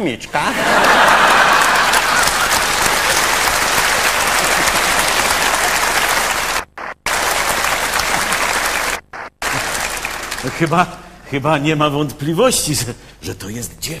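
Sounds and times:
audience applauding: 0.6 - 11.1.

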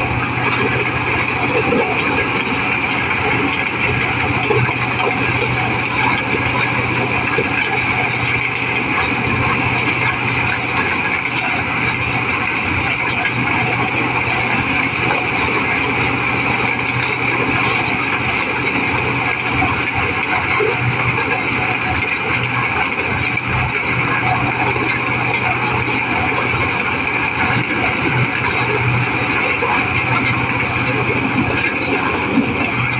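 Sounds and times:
corn sheller engine droning: 0.0 - 32.9.

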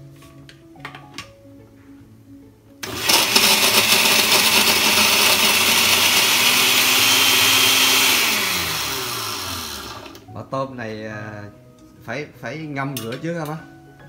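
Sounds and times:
blender grinding: 2.8 - 10.3.

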